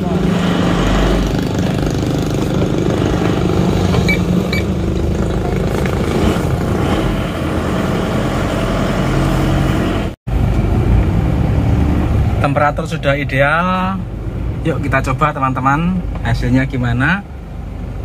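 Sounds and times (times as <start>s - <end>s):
diesel engine running: 0.0s - 15.5s
short high beeps: 4.0s - 4.7s.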